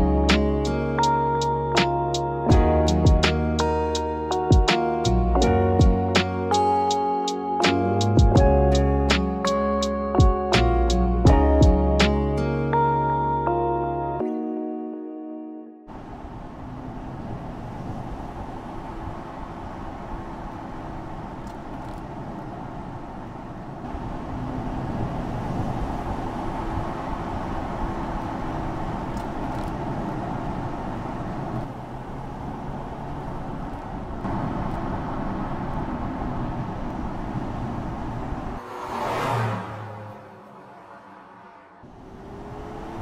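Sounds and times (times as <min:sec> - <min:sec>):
tyre and road noise: 0:15.9 - 0:43.0.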